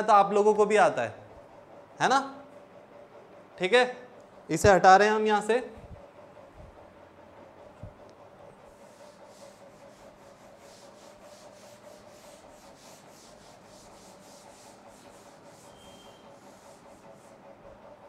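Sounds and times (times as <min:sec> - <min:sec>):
cloth wiping chalkboard: 0:08.6 - 0:17.6.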